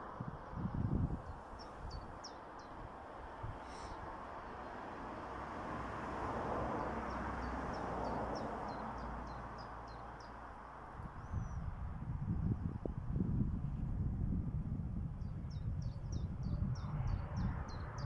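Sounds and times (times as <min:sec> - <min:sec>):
road vehicle passing: 0:00.0 - 0:11.2.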